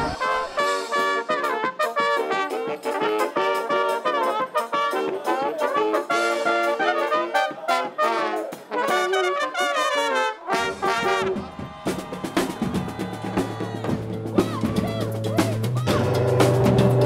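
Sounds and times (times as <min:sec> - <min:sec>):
brass band playing: 0:00.0 - 0:17.0
drumming: 0:10.5 - 0:17.0.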